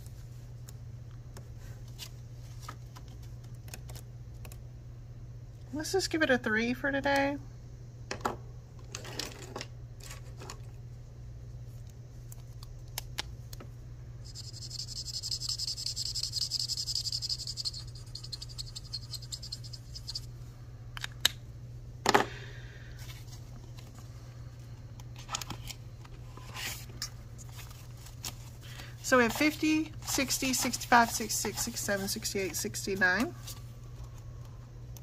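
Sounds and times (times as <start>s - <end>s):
marker scratching on paper: 14.3s - 20.3s, 29.2s - 33.0s
paper rustling: 26.4s - 33.7s.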